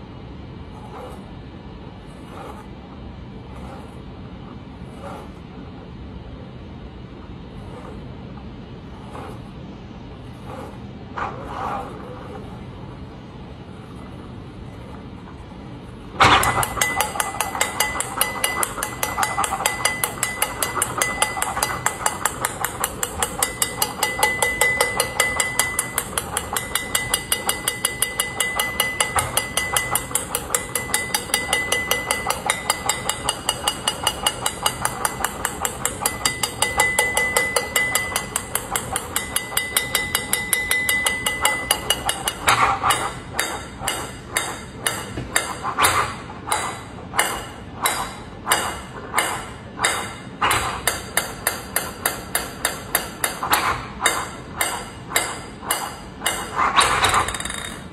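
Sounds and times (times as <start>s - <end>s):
ping-pong ball bouncing on plate: 16.2s - 57.9s.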